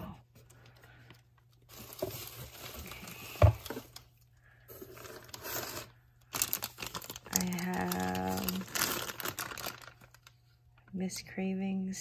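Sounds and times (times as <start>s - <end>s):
plastic bags crinkling: 0.6s - 10.9s.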